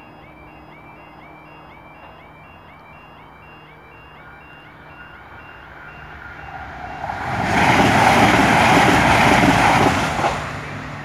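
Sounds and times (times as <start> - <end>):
train passing at speed: 3.3 - 11.0.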